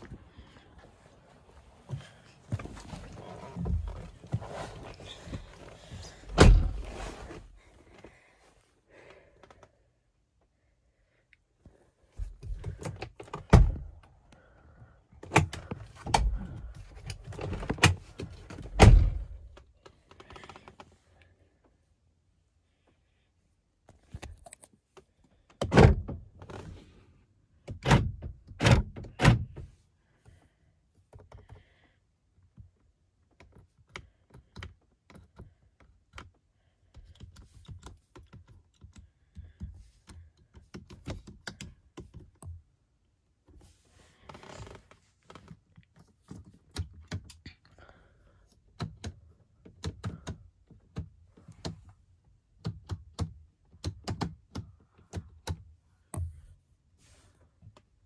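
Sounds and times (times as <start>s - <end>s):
heavy thunks: 1.8s - 7.2s.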